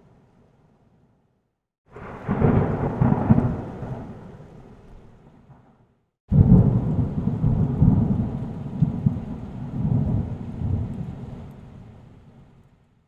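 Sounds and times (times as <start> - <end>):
thunder rumbling: 1.9 - 11.8.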